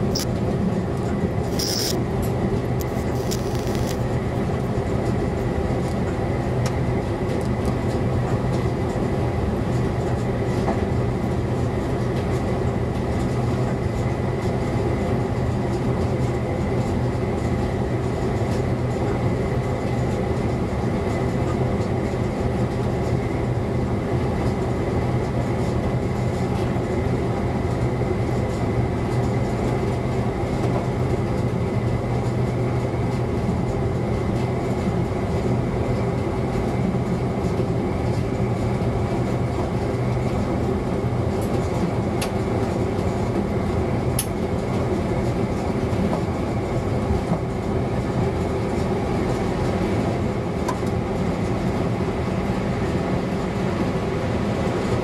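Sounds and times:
low diesel engine drone: 0.0 - 55.0
faint high whine: 1.5 - 2.0, 2.8 - 4.0
wheel and rail noise: 1.5 - 2.0, 2.8 - 4.0.

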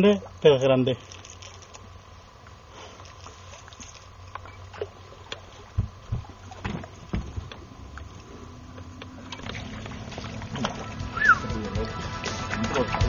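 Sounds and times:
low steady hum: 0.0 - 13.0
dull thumps on boat: 5.7 - 7.6.

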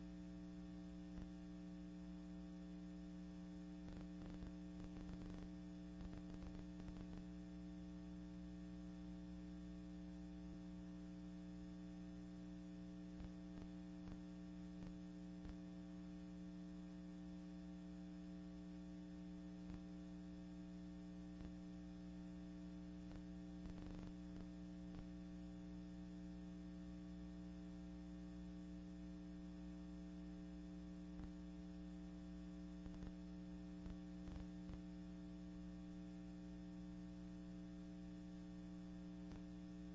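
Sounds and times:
low electrical hum: 0.0 - 39.9
static clicks: 3.8 - 7.3, 23.1 - 25.1, 32.8 - 33.2, 33.8 - 34.8, 39.2 - 39.5.

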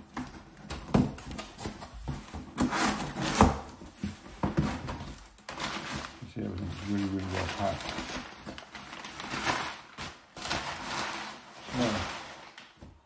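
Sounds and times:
cardboard scraping: 0.0 - 12.9
paper rustling: 0.1 - 13.0.

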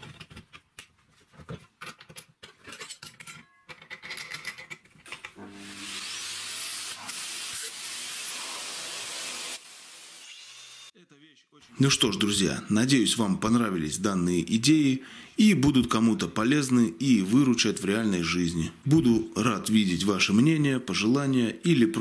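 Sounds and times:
handling clicks and rubbing: 0.0 - 5.4
vacuum cleaner running: 5.4 - 10.9.

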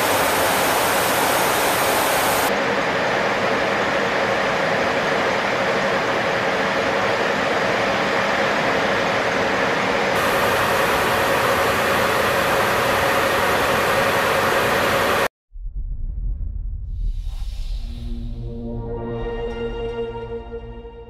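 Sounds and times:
bright hiss: 0.0 - 2.5
jet engines and rushing air: 0.0 - 15.3.

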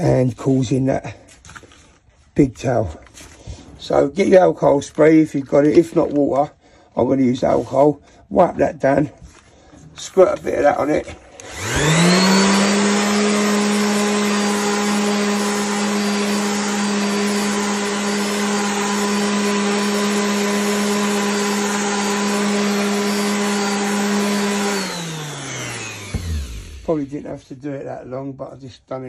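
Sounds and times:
orbital sander motor hum: 11.4 - 27.4
sander pad hissing on wet surface: 11.5 - 27.2.

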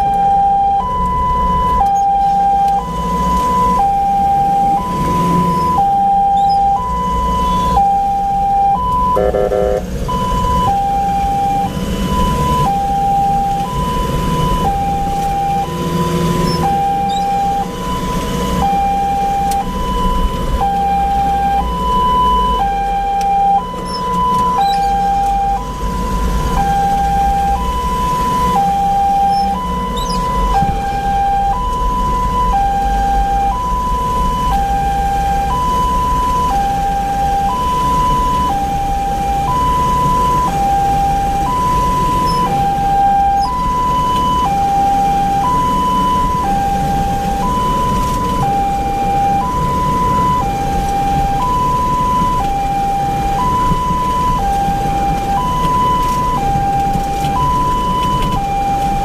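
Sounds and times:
two-tone ambulance siren: 0.0 - 59.0
vehicle engine and road noise: 0.0 - 59.0
short horn blast: 9.2 - 9.9.

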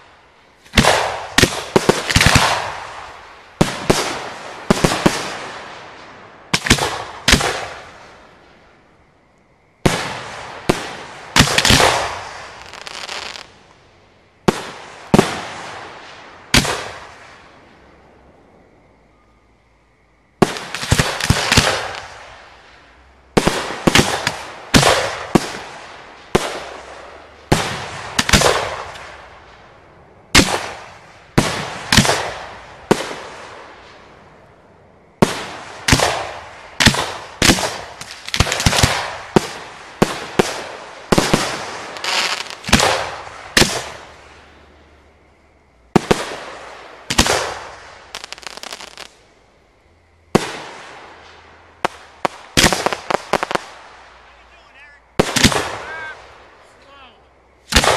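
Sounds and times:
fireworks bursting bangs: 0.0 - 8.6, 9.8 - 13.8, 14.4 - 18.0, 20.4 - 34.5, 35.1 - 45.2, 45.8 - 49.4, 50.2 - 57.9
firework shells launching: 55.2 - 56.3, 57.7 - 57.9.

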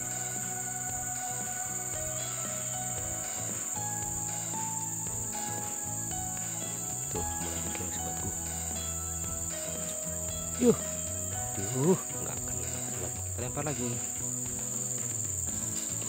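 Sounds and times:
insects chirring: 0.0 - 16.0
soft background music: 0.0 - 16.0.

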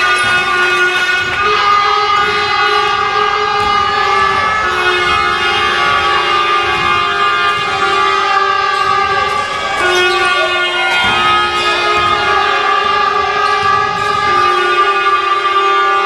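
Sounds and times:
loud droning tone: 0.0 - 16.0.

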